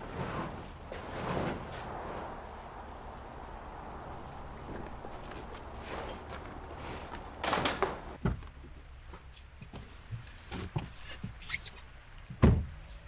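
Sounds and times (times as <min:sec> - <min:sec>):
rustle: 0:00.0 - 0:08.1.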